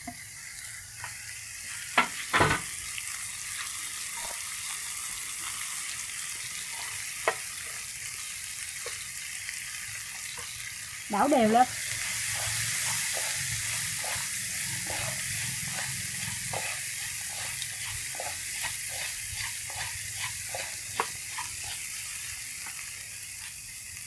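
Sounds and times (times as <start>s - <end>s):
vegetables sizzling in oil: 0.0s - 24.0s
chopsticks tapping and scraping pan: 6.7s - 7.8s, 8.8s - 9.0s, 12.3s - 22.8s.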